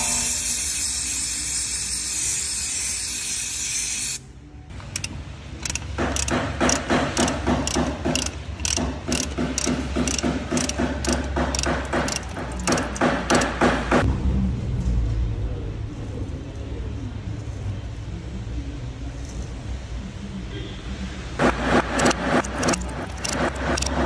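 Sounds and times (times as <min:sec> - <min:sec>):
aerosol spray hissing: 0:00.0 - 0:04.2
rhythmic clicking beat: 0:04.8 - 0:14.0, 0:21.4 - 0:24.0.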